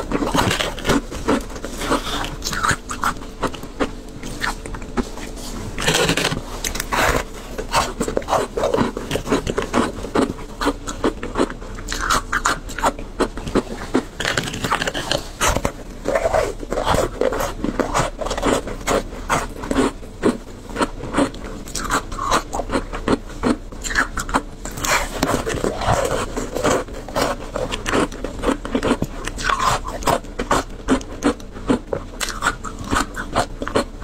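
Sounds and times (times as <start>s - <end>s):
person crunching ice: 0.0s - 33.9s.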